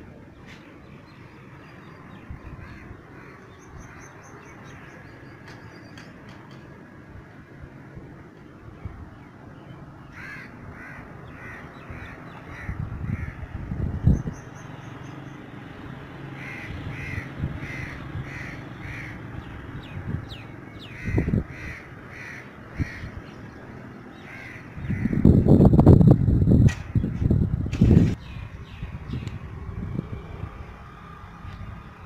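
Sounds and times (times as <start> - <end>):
bird calling: 9.7 - 15.4, 16.3 - 25.4.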